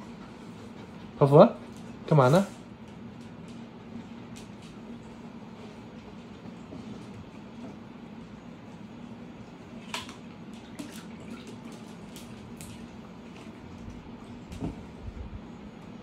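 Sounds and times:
dog lapping water: 9.7 - 14.6.

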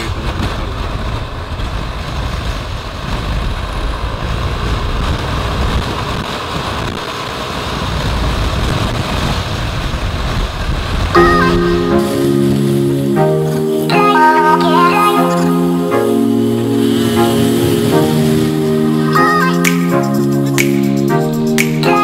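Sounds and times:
wind buffeting microphone: 0.0 - 11.2
road noise: 0.0 - 22.0.

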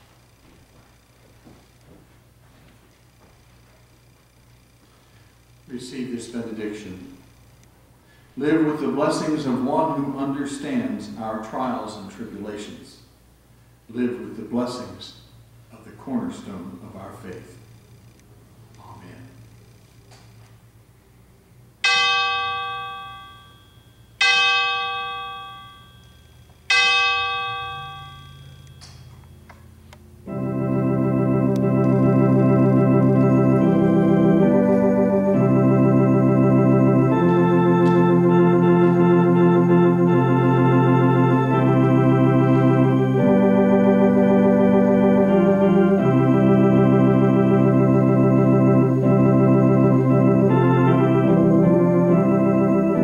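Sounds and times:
organ music: 3.5 - 7.4, 8.1 - 12.8, 21.8 - 53.0
chime ringing: 21.8 - 29.5.

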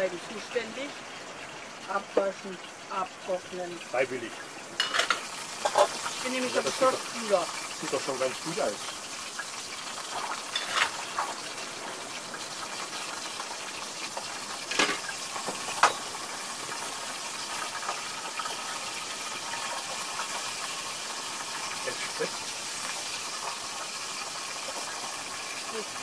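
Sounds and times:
steady rushing hiss: 0.0 - 26.0
cookware clinking: 4.8 - 6.0, 14.7 - 15.1.

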